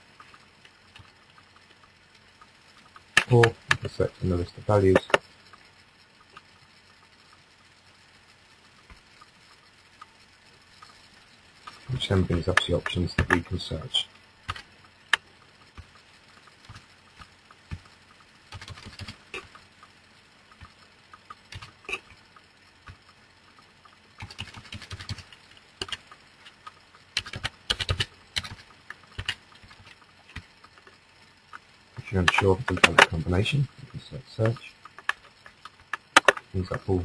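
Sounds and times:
computer keyboard typing: 2.7s - 5.6s, 11.6s - 19.9s, 20.5s - 22.2s, 23.8s - 37.0s.

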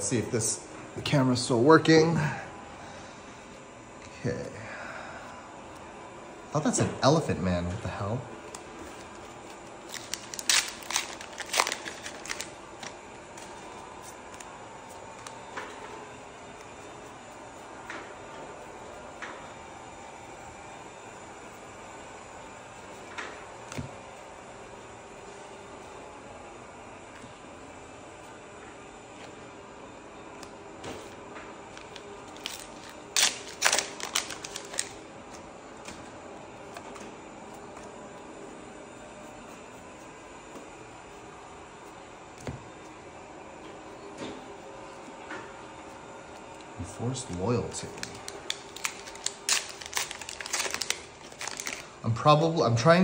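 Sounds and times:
cards being handled: 8.4s - 17.1s, 30.4s - 36.1s, 46.3s - 51.9s
cards snapping and flicking: 9.9s - 12.5s, 31.8s - 35.0s, 48.0s - 51.8s.

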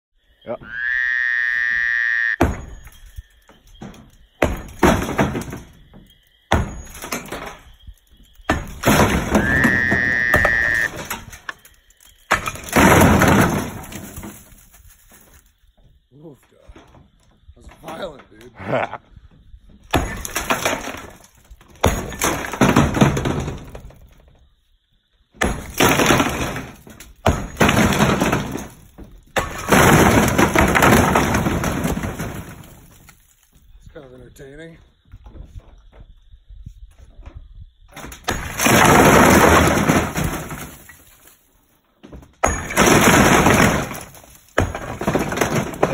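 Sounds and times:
sledgehammer striking brick: 2.4s - 3.0s, 3.8s - 5.9s, 6.5s - 7.6s, 8.5s - 11.3s, 12.3s - 14.2s, 19.9s - 23.6s, 25.4s - 32.9s, 38.2s - 40.9s, 42.4s - 45.9s.

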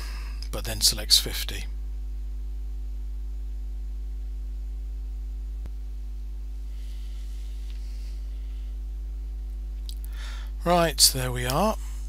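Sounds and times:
electrical mains hum: 0.0s - 12.0s
faint hiss: 6.5s - 9.0s.

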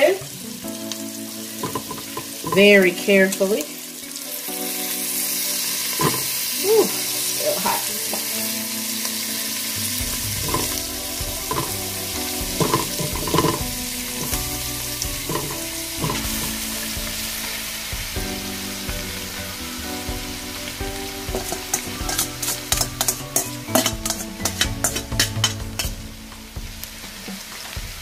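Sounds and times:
meat sizzling in a pot: 0.0s - 28.0s
spoon knocking against pot: 1.6s - 2.7s, 6.0s - 6.3s, 10.4s - 10.7s, 11.5s - 11.8s, 12.6s - 14.4s, 15.2s - 16.6s, 21.3s - 26.0s.

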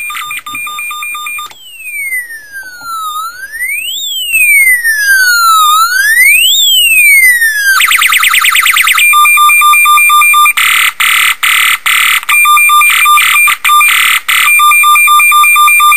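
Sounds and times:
rapid pulsing siren tone: 0.0s - 9.0s
harsh siren blare: 0.0s - 9.1s
electronic siren wailing: 0.0s - 15.9s
fast upward siren sweeps: 1.3s - 9.0s.

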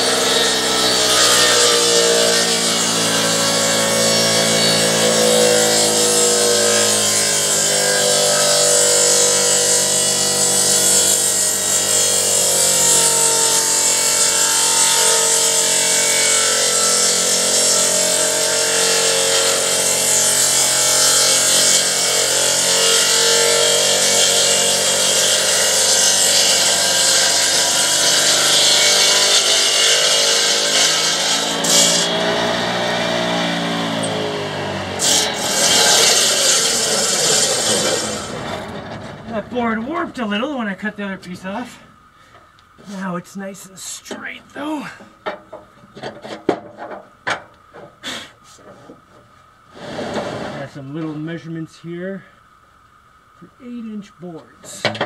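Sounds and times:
electric saw cutting log: 0.0s - 39.3s.

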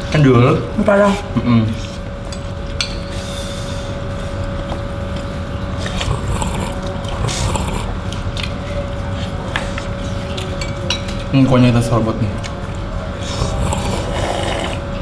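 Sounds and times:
steady low hum: 0.0s - 15.0s
chewing: 4.2s - 11.3s, 12.4s - 15.0s
slurping soup: 5.8s - 8.3s, 13.2s - 15.0s.

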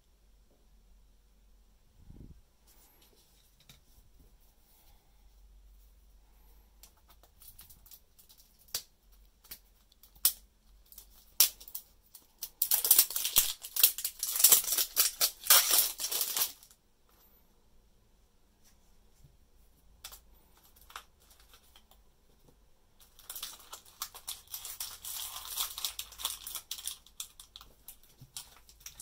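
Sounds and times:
plastic wrap crinkling: 6.8s - 16.8s, 20.0s - 22.0s, 23.0s - 29.0s.

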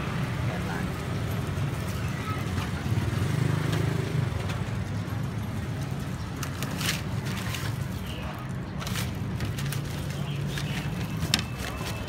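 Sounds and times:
low rumble of street traffic: 0.0s - 12.0s
paper bag rustling: 6.4s - 12.0s.

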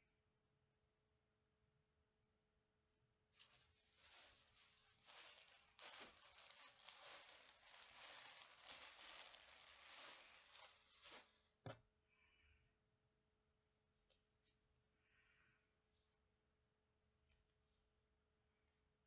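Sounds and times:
cloth rustling on microphone: 3.4s - 11.6s.

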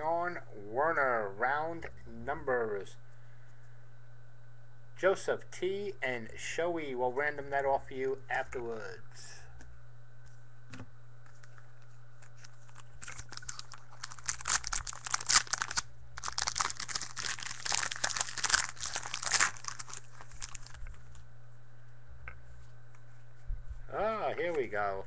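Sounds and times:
wrapper tearing and crinkling: 12.2s - 21.2s.

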